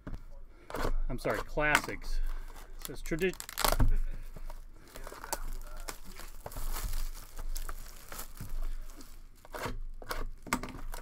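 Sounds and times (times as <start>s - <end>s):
plastic shrink-wrap crinkling: 2.3s - 11.0s.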